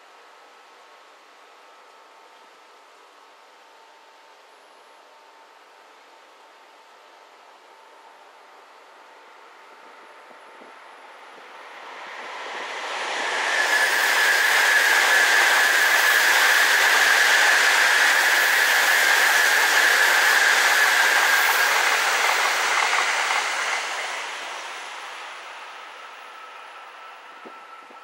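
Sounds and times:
train passing at speed: 0:08.8 - 0:28.0.

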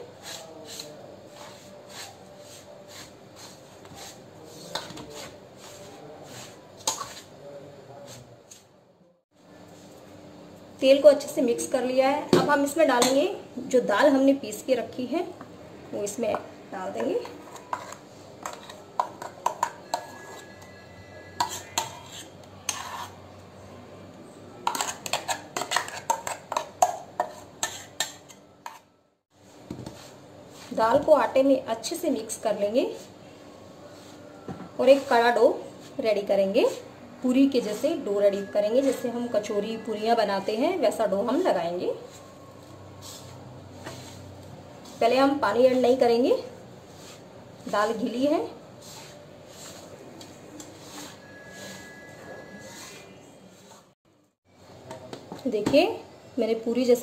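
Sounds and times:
hand rubbing flour in steel bowl: 0:00.1 - 0:07.4, 0:43.0 - 0:53.9
metal spoon clinking on steel bowl: 0:17.2 - 0:20.8, 0:21.4 - 0:23.1, 0:24.7 - 0:28.9.

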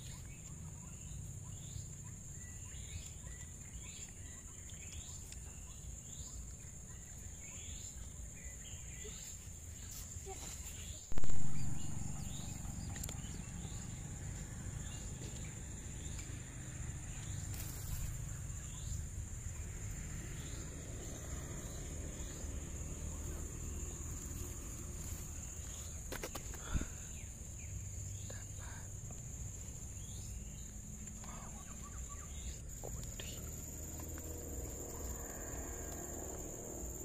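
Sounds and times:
bird chirps: 0:00.0 - 0:19.6, 0:20.2 - 0:34.2
insect trilling: 0:10.9 - 0:37.0
low microphone rumble: 0:11.1 - 0:16.1.

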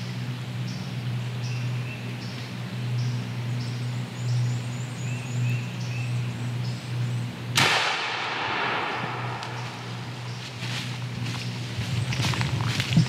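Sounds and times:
small birds chirping: 0:00.0 - 0:07.5, 0:08.9 - 0:13.0
steady low hum: 0:00.0 - 0:13.0
shotgun blast with echo: 0:07.6 - 0:09.6.

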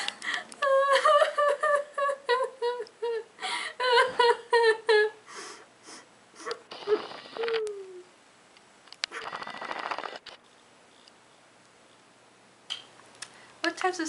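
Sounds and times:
girl wailing sobs: 0:00.6 - 0:05.2, 0:06.4 - 0:08.1
faint breaths: 0:05.2 - 0:08.0, 0:13.2 - 0:13.6.

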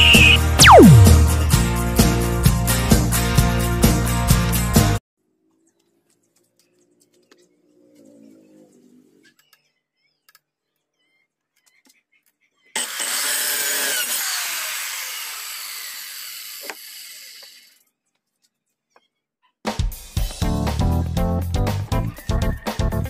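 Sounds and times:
circular saw cutting wood: 0:12.8 - 0:17.8.

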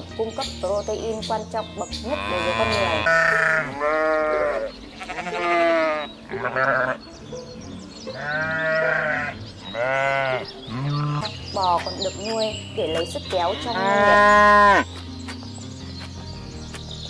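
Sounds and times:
animals bleating: 0:02.0 - 0:07.1, 0:08.0 - 0:11.3, 0:12.9 - 0:15.0.

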